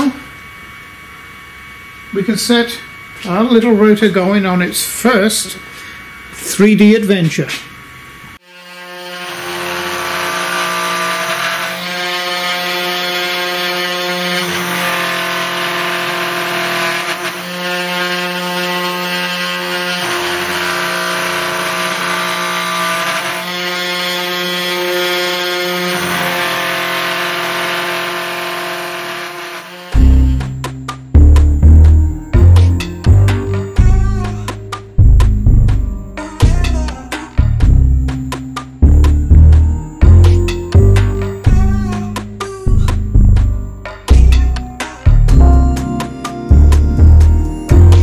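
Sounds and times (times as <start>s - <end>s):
cnc router machine whine: 0.0s - 30.6s.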